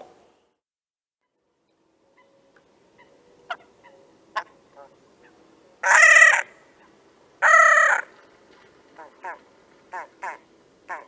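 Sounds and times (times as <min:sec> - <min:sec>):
bird harsh braying calls: 0:03.0 - 0:08.2, 0:09.0 - 0:11.0.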